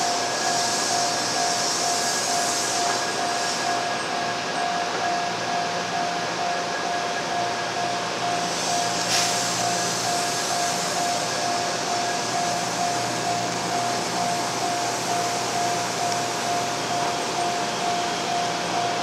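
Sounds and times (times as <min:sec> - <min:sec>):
train passing rumble: 0:00.0 - 0:19.0
level crossing bell ringing: 0:09.7 - 0:19.0.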